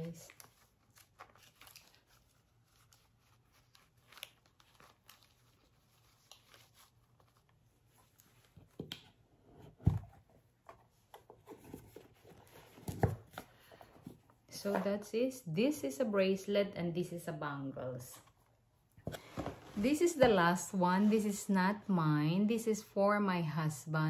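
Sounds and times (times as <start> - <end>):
rustling of fabric pouch and paper: 0.0 - 8.6.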